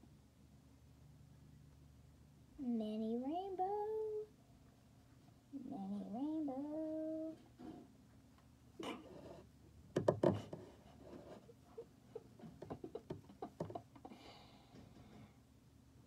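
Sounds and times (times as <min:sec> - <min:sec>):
pencil scratching on paper: 0:10.2 - 0:11.6.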